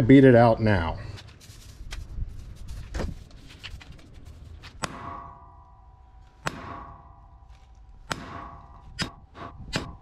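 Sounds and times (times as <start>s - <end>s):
hammer striking metal pin: 4.8s - 10.0s.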